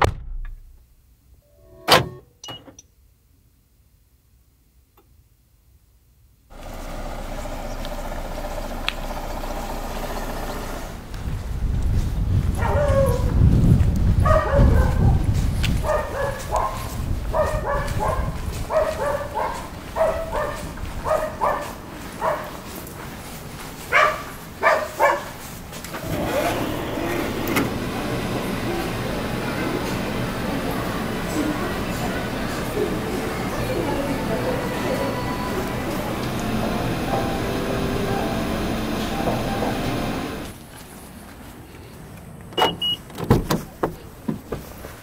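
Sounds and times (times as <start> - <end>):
low rumble: 0.0 - 1.0.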